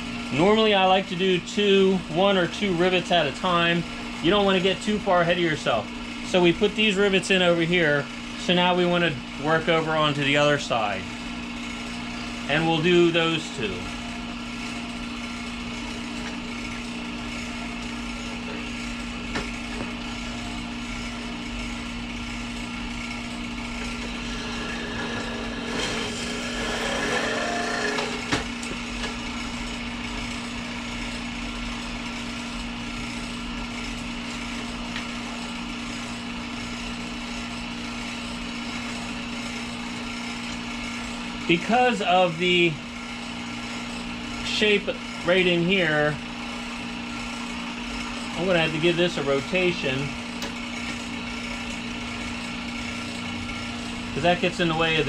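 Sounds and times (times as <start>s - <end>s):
shop motor humming: 0.0s - 55.0s
rasping: 24.0s - 28.3s.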